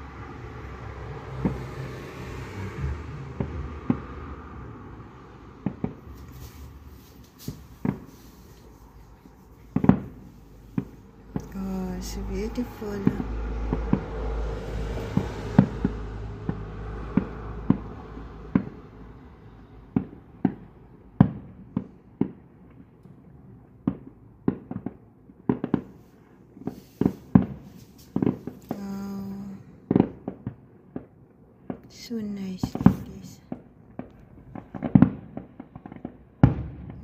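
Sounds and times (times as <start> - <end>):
low rumble: 0.0 - 24.4, 32.4 - 37.0
fireworks shells bursting: 5.6 - 11.6.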